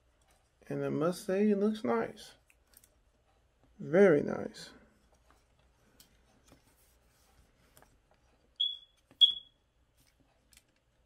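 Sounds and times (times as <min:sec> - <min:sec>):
short high electronic beeps: 0:08.6 - 0:09.5.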